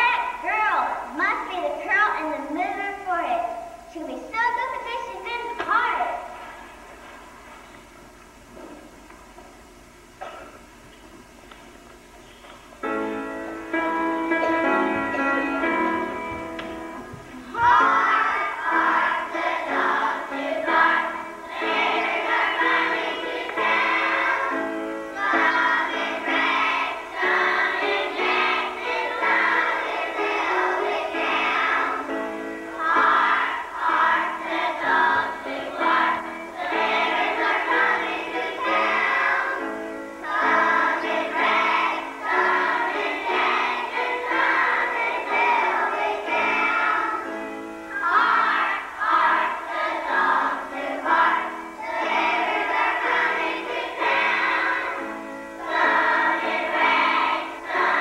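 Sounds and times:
children singing: 17.4 - 58.0.

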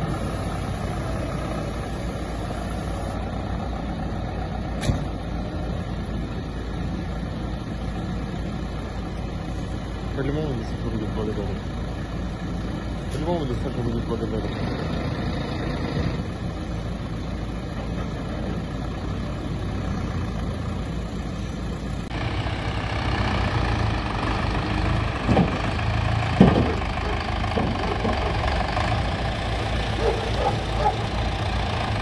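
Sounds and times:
tractor diesel engine running: 0.0 - 32.0
sharp knocks: 25.2 - 28.3.

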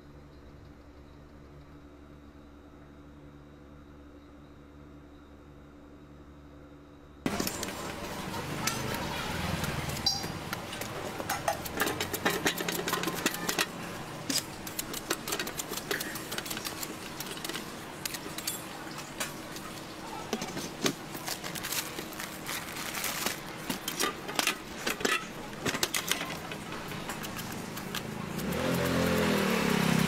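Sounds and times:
low background hum: 0.0 - 28.6
metal utensils clinking: 7.3 - 30.0.

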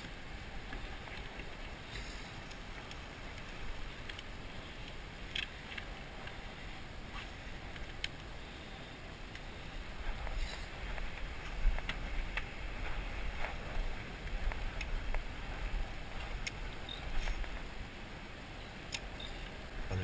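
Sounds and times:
wind noise on microphone: 9.1 - 20.0.

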